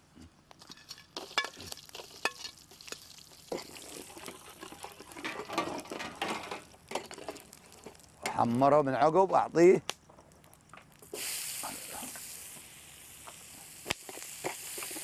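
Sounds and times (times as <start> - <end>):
spices sizzling in hot oil: 0.6 - 9.4, 10.3 - 15.0
metal ladle scraping pot: 3.5 - 8.4.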